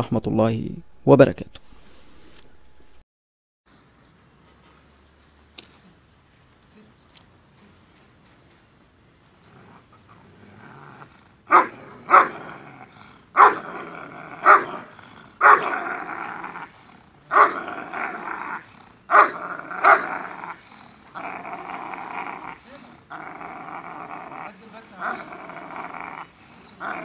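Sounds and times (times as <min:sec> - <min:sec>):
dog growling: 0:09.4 - 0:27.0
dog barking aggressively: 0:11.5 - 0:12.7, 0:13.4 - 0:16.6, 0:17.3 - 0:20.6.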